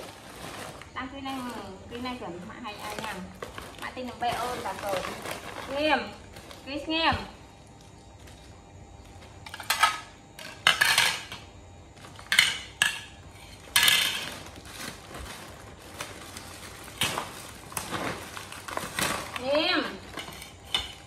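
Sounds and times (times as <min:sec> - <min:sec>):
plastic packaging crinkling: 0:00.0 - 0:07.0, 0:13.4 - 0:21.0
ceramic plates clattering on tiles: 0:09.5 - 0:11.4.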